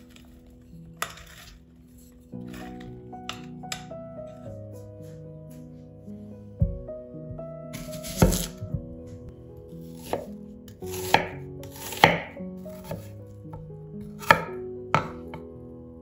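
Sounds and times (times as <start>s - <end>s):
knife striking a cutting board: 7.8s - 8.6s, 10.9s - 13.1s, 14.2s - 15.4s.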